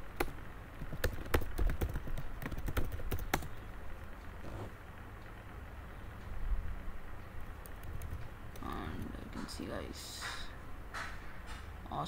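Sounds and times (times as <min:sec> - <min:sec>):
keyboard keys clicking: 0:00.2 - 0:03.5, 0:07.6 - 0:09.1.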